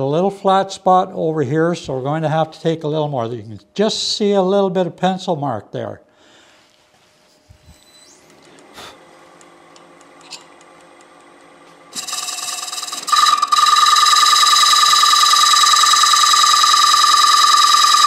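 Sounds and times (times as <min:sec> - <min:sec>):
wood lathe buzzing: 0:11.9 - 0:18.0.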